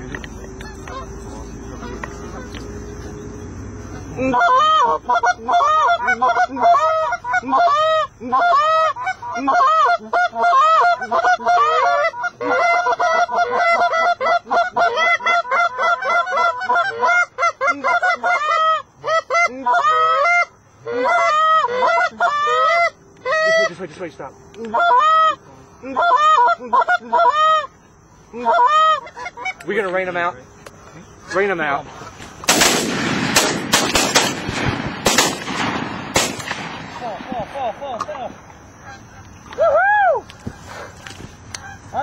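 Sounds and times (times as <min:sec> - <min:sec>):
geese honking: 0:00.0 - 0:32.8, 0:36.0 - 0:39.6, 0:40.3 - 0:42.0.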